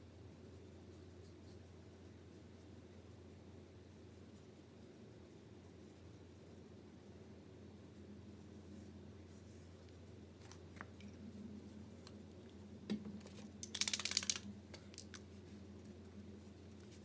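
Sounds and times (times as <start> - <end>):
low room hum: 0.0 - 17.0
paint marker ball rattling: 13.2 - 15.2.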